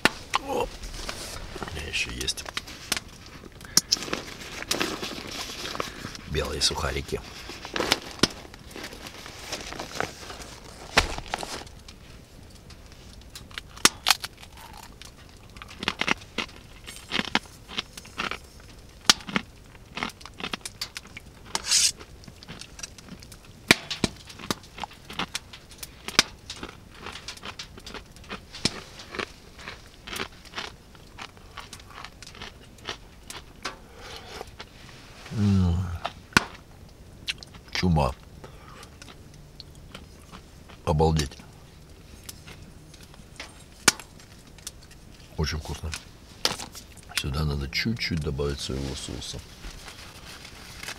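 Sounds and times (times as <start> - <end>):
plastic packet crinkling: 0.2 - 11.9.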